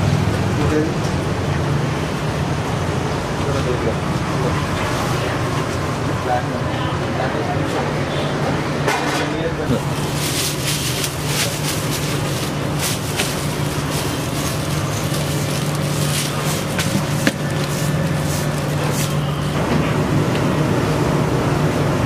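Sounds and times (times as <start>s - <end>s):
low mechanical hum: 0.0s - 22.0s
dough slapping in steel bowl: 10.1s - 19.2s.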